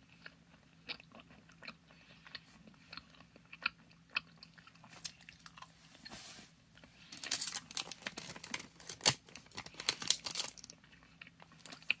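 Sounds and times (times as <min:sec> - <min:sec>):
foil candy wrapper crinkling: 0:07.0 - 0:10.8, 0:11.4 - 0:12.0.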